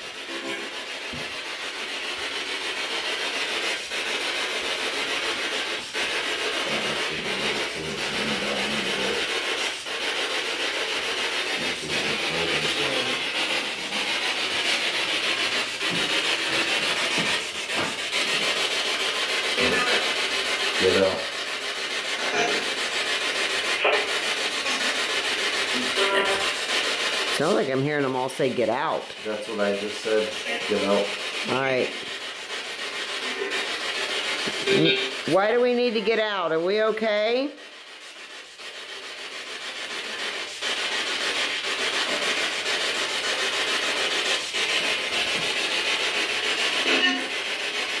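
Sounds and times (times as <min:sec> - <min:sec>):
radio static sweeping: 0:05.4 - 0:17.8, 0:19.5 - 0:21.3, 0:22.2 - 0:22.8, 0:23.5 - 0:25.0, 0:25.6 - 0:32.0, 0:34.4 - 0:37.5.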